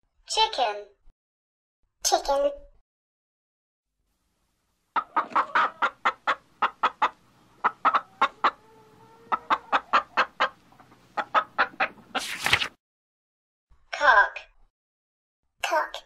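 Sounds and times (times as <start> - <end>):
hen clucking: 4.9 - 12.3
hen squawking: 5.0 - 12.3.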